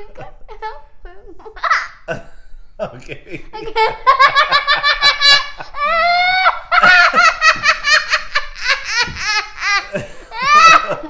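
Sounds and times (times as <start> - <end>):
girl laughing: 0.0 - 2.3, 3.0 - 11.0
girl shrieking: 10.3 - 11.0.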